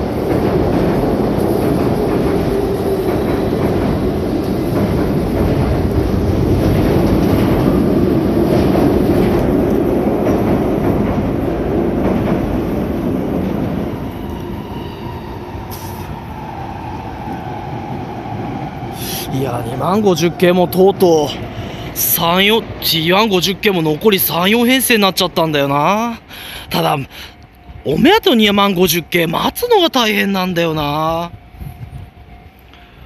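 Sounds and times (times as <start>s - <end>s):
train wheels on rails: 0.0s - 33.0s.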